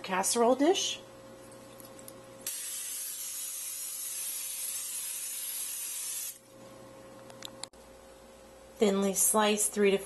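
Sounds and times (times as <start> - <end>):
aerosol spray hissing: 2.5 - 6.4.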